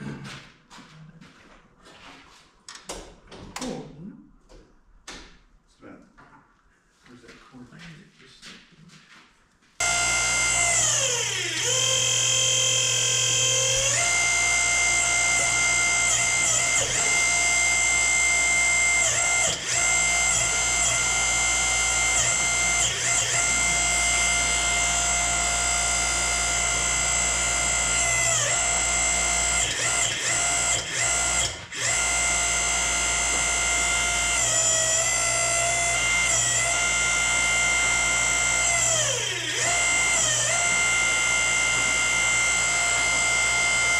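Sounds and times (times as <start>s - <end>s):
hydraulic power unit whining: 9.8s - 43.9s.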